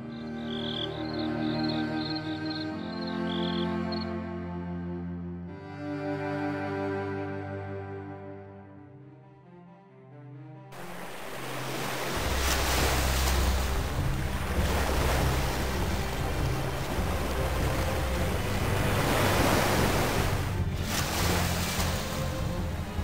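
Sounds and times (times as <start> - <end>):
waves and wind on water: 0.4 - 4.0, 10.8 - 23.0
low rumble: 12.1 - 23.0.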